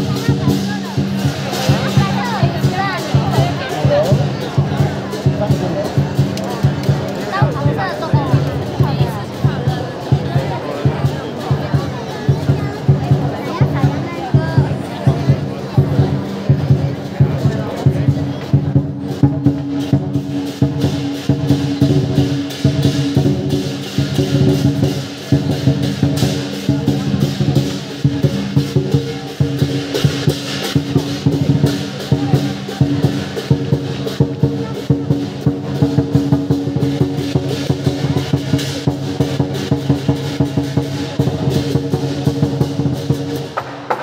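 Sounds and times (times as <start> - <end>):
cymbals ringing: 0.0 - 6.4, 19.0 - 43.6
drum beaten rapidly: 0.0 - 44.0.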